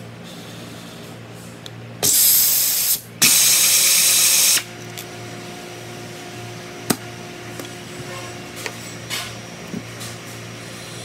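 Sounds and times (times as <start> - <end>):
air ratchet wrench hissing: 2.0 - 4.7.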